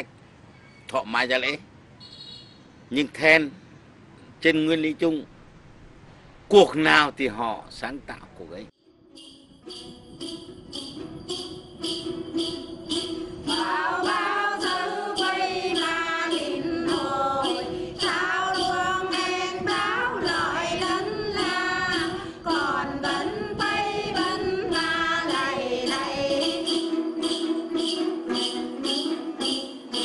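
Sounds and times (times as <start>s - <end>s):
steady low tone: 8.8s - 28.1s
jingle bells shaken: 9.1s - 30.0s
woman singing: 13.5s - 26.9s.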